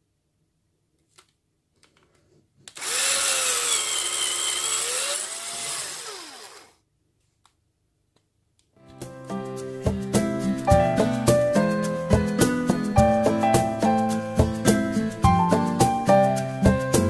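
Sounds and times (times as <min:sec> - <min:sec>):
electric drill boring into wood: 0:02.7 - 0:06.8.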